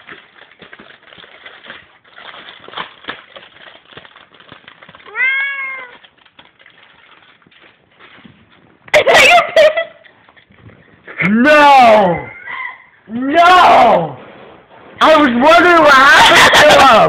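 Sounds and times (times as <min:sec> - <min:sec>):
plastic wrap and foil crinkling: 0:00.0 - 0:11.4, 0:12.3 - 0:17.0
cat meowing: 0:05.1 - 0:06.0.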